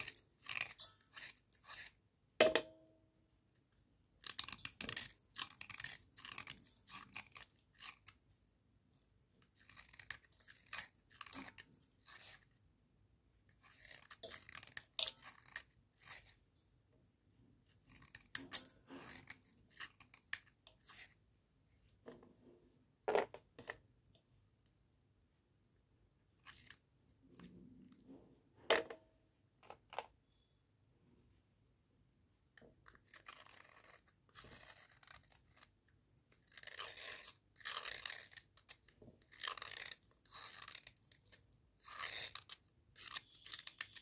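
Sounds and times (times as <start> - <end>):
blade scraping slate pencil: 0.0 - 2.0, 4.2 - 8.2, 9.4 - 12.6, 13.5 - 16.5, 17.7 - 21.2, 26.4 - 27.6, 32.6 - 44.0.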